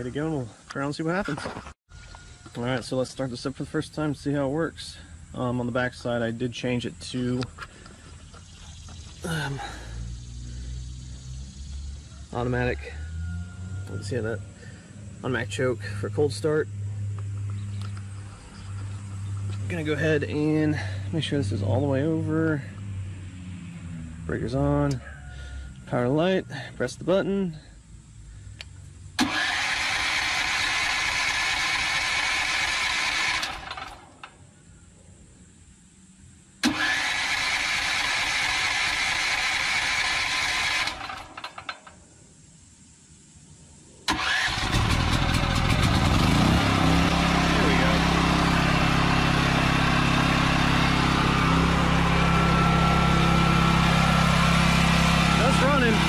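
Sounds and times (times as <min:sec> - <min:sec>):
generator engine running: 0:07.4 - 0:11.3, 0:29.2 - 0:34.1, 0:36.6 - 0:41.7, 0:44.1 - 0:56.0
electric starter cranking: 0:29.2 - 0:34.3, 0:36.6 - 0:41.8, 0:44.1 - 0:56.0.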